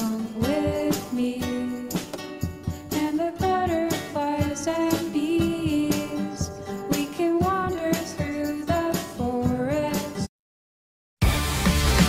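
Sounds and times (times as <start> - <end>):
person singing over a beat: 0.0 - 2.2, 2.9 - 10.3.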